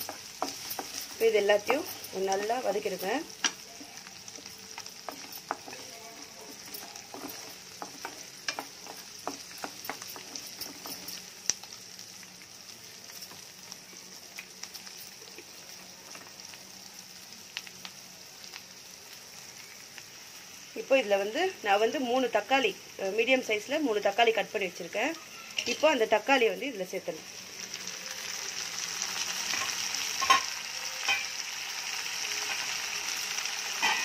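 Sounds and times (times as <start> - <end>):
food sizzling in oil: 0.0 - 34.0
wooden spatula scraping a pan: 4.3 - 11.2.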